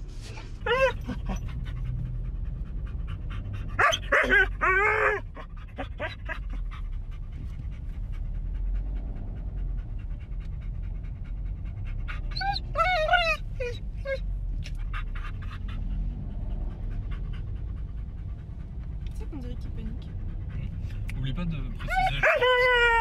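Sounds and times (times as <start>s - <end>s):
dog panting: 0.2s - 13.9s, 14.7s - 23.0s
dog whining: 0.4s - 2.0s, 3.4s - 7.0s, 11.9s - 16.0s, 21.8s - 23.0s.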